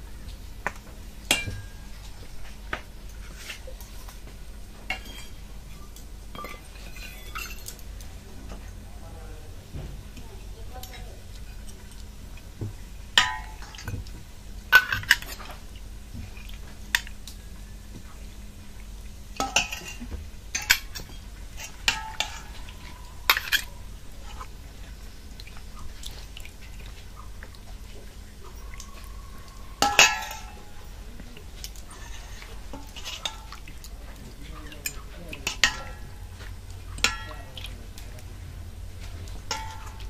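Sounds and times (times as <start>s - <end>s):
metal ladle clinking bowls: 1.3s - 1.8s, 4.9s - 7.9s, 13.2s - 14.0s, 14.7s - 15.6s, 19.4s - 24.5s, 29.8s - 30.9s, 31.7s - 38.0s, 39.3s - 40.0s.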